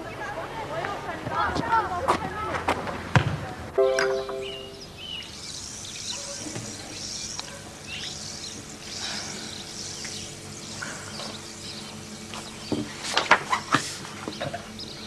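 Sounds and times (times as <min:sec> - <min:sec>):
birds chirping: 0:03.8 - 0:15.0.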